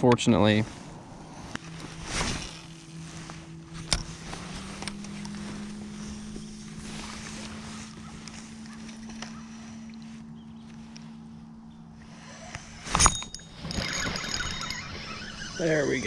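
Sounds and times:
gear rustling and clattering: 1.4 - 9.6, 12.8 - 16.0.

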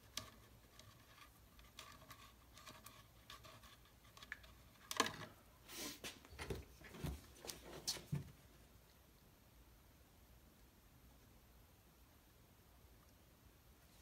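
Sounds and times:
wires being twisted: 0.0 - 5.4.

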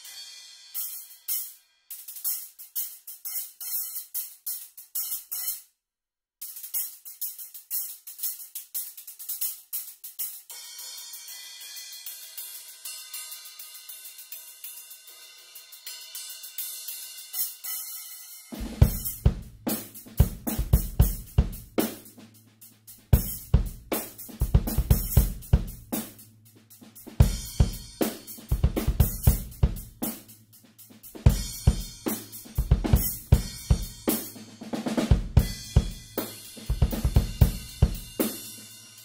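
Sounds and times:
cymbals: 0.0 - 5.6, 6.5 - 39.0
damped drums playing a groove: 18.5 - 39.0.

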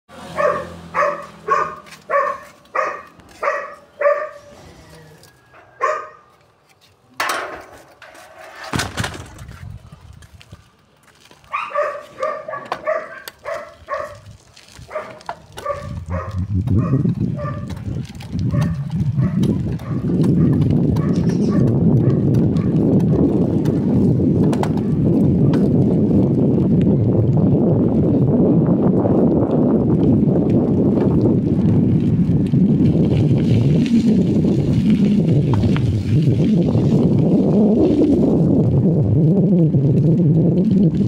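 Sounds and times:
dog barking: 0.3 - 4.5, 5.5 - 6.3, 11.5 - 14.2, 14.9 - 17.7, 18.5 - 22.8.

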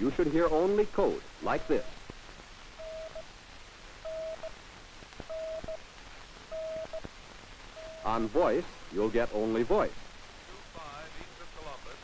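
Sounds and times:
faint radio static: 0.0 - 12.0
morse code beacon tone: 2.8 - 3.2, 4.1 - 4.5, 5.3 - 5.8, 6.5 - 7.0, 7.8 - 8.3.

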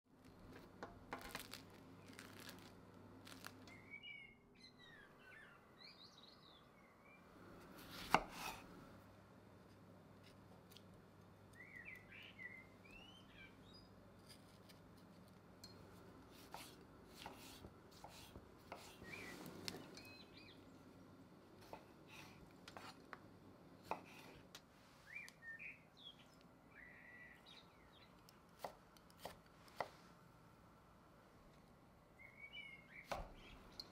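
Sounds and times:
birds chirping: 3.6 - 7.4, 11.4 - 14.0, 18.7 - 21.9, 25.0 - 28.4, 32.1 - 33.9
knife chopping on wooden board: 7.9 - 8.6, 16.4 - 19.0, 23.8 - 24.4.

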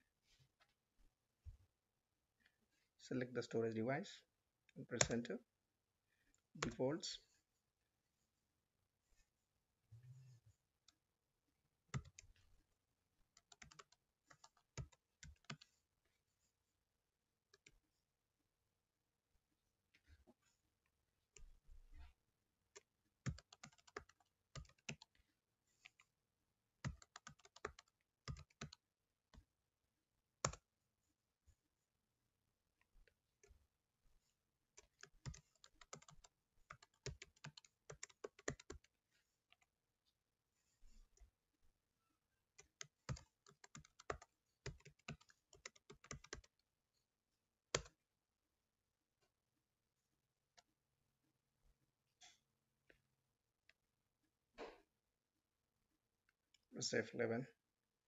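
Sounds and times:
typing on computer keyboard: 13.4 - 15.7, 23.2 - 25.1, 26.8 - 28.8, 34.8 - 38.9, 42.6 - 46.5.

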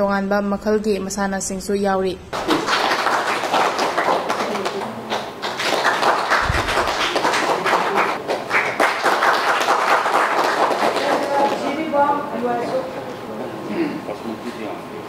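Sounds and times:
small group applauding: 2.3 - 11.9.

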